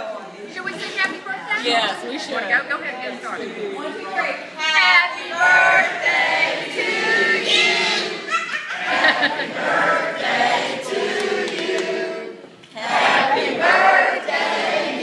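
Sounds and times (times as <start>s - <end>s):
group of voices singing: 4.6s - 15.0s.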